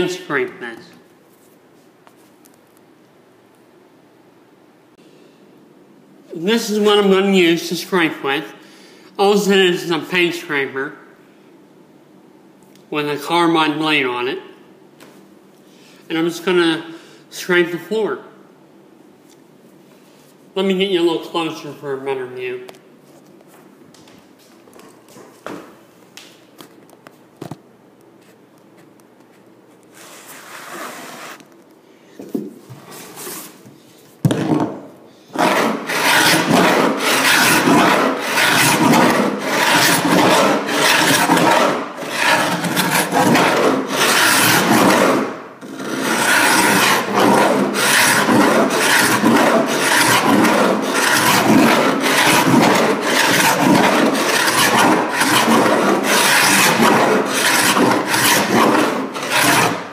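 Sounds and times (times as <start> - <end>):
paint scraper rasping on wood floor: 30.0 - 31.4, 35.3 - 59.9.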